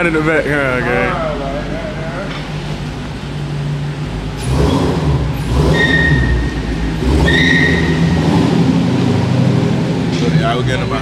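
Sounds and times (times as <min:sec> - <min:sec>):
car engine revving: 0:00.0 - 0:11.0
short high squeals: 0:05.7 - 0:08.2.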